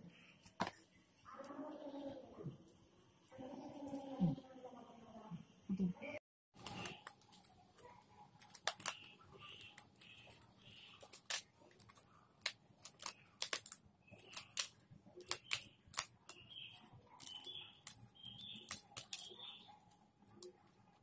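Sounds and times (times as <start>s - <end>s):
puzzle sheets clicking and snapping: 8.4s - 9.1s, 11.0s - 16.5s, 17.2s - 19.5s.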